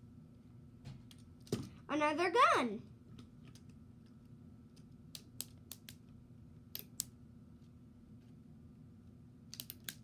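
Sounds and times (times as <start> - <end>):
low steady hum: 0.0 - 10.0
plastic pieces clicking: 9.5 - 10.0.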